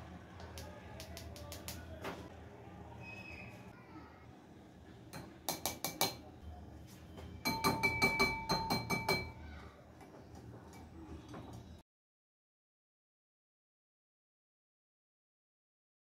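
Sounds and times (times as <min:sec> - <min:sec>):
sieve tapping glass bowl: 0:05.2 - 0:06.2, 0:07.5 - 0:09.4.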